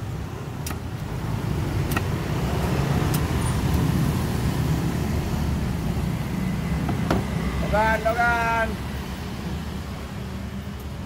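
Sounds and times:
road traffic rumble: 0:00.0 - 0:11.0
machete chopping coconut: 0:01.8 - 0:02.3.

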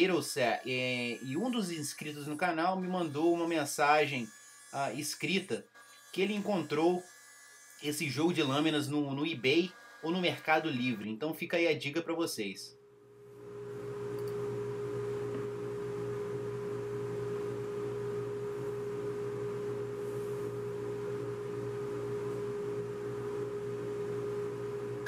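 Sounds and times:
woodshop machinery humming: 0:00.0 - 0:11.2.

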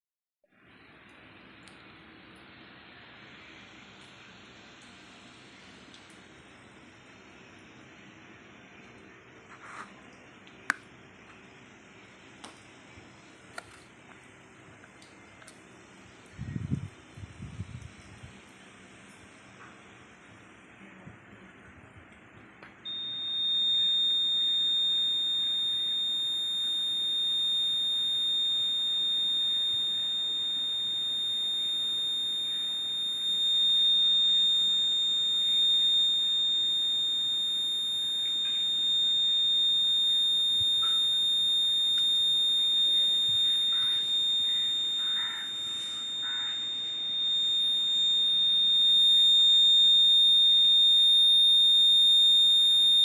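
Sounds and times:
high-pitched alarm buzzer tone: 0:22.9 - 0:53.0.

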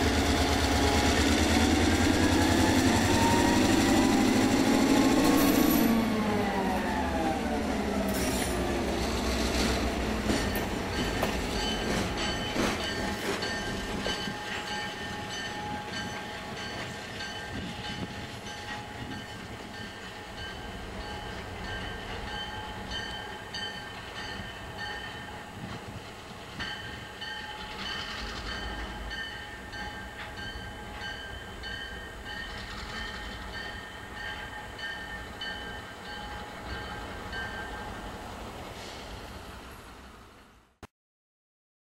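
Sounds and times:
train wheels squealing: 0:00.0 - 0:06.8, 0:08.0 - 0:20.2, 0:21.6 - 0:34.9
freight train rumbling: 0:00.0 - 0:40.7.

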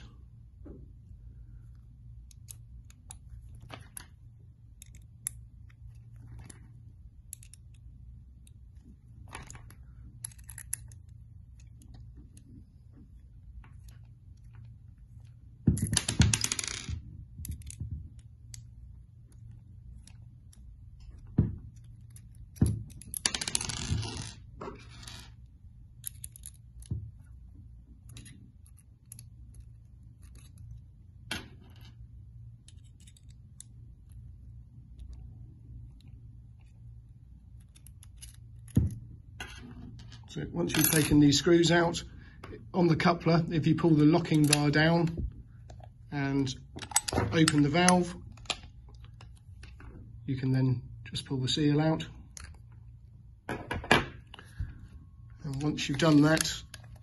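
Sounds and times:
steady low hum: 0:00.0 - 0:57.0
allen key clicking and scraping: 0:09.2 - 0:12.6, 0:24.8 - 0:27.4, 0:28.0 - 0:30.9.

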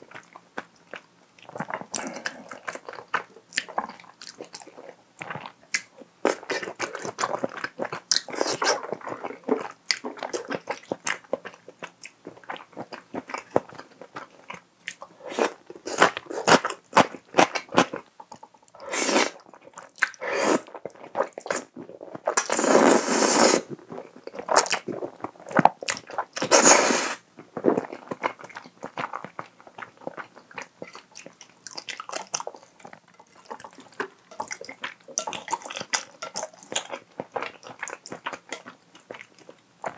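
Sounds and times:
chewing and wet mouth sounds: 0:00.0 - 0:39.9
slurping noodles: 0:18.8 - 0:19.4, 0:20.2 - 0:20.7, 0:22.4 - 0:23.7, 0:26.4 - 0:27.2.

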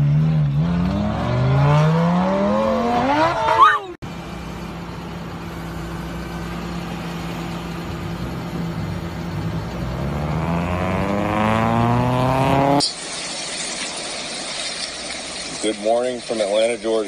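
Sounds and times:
car engine idling and revving: 0:00.0 - 0:12.9.

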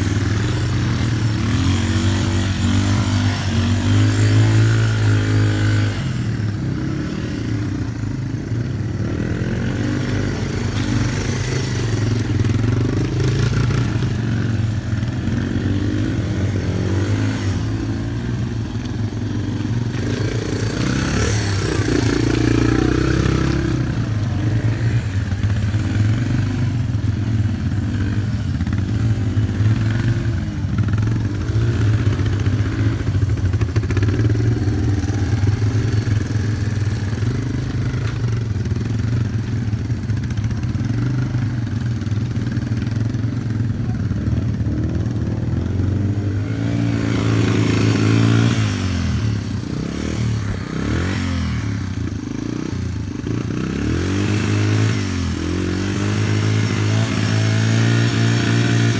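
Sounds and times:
small motorcycle engine running: 0:00.0 - 0:58.9.

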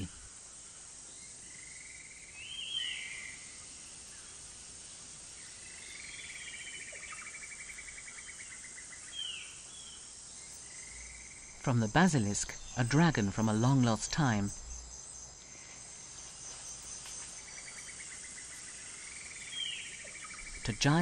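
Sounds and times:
high insect drone: 0:00.0 - 0:21.0
bird calls: 0:16.5 - 0:21.0.

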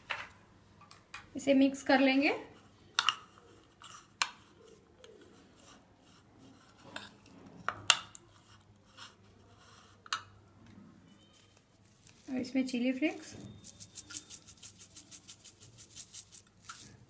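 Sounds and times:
spoon stirring vegetables in a bowl: 0:13.2 - 0:17.0.

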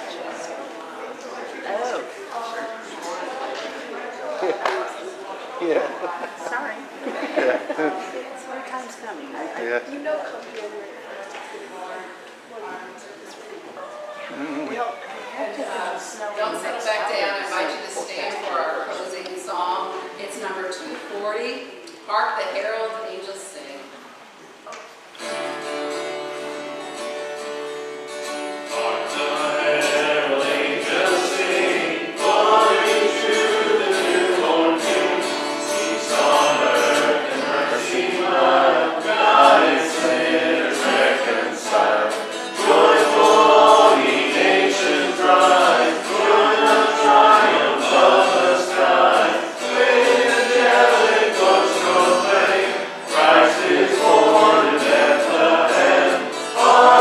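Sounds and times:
acoustic guitar: 0:00.0 - 0:57.0
people singing a worship song: 0:28.6 - 0:57.0.

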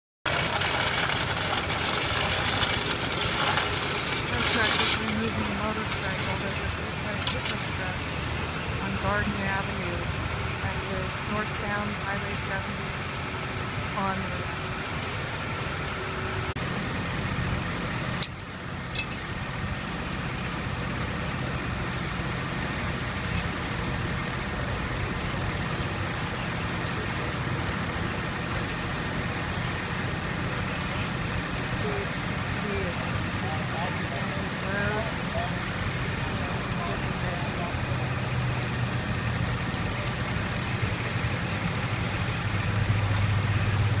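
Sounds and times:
road noise: 0:00.3 - 0:44.0
truck engine idling: 0:00.3 - 0:44.0.

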